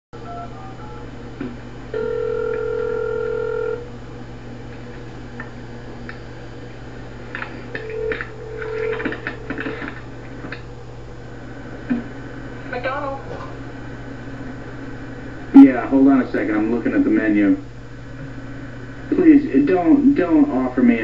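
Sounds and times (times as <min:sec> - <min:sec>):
telephone ringback tone: 0:00.2 - 0:01.1, 0:01.9 - 0:03.8, 0:07.8 - 0:09.5
phone line clicks and crackle: 0:07.3 - 0:10.7.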